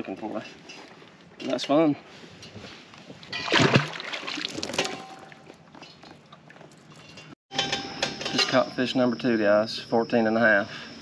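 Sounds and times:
water sloshing: 3.1 - 7.3
fish splashing into water: 3.5 - 5.1.

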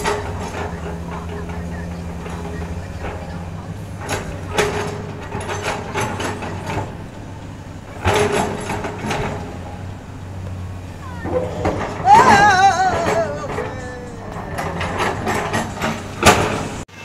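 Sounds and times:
bucket clanking and scraping: 0.0 - 17.0
excavator diesel engine running: 0.0 - 17.0.

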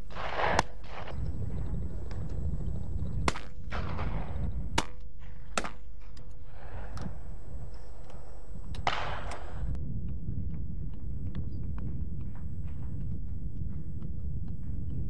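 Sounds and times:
distant gunshots: 0.0 - 2.2, 3.1 - 9.8
shotguns firing with echo: 0.0 - 2.3, 3.1 - 9.8
steady low rumble: 0.0 - 15.0.

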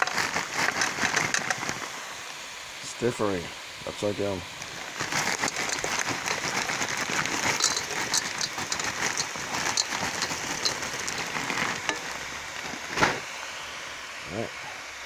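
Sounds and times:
vegetables sizzling in a pan: 0.0 - 15.0.

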